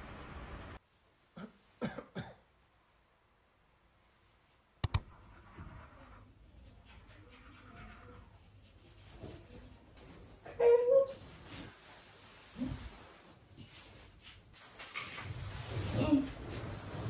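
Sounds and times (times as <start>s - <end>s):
person coughing: 1.4s - 2.4s
sharp clicks: 4.8s - 5.1s.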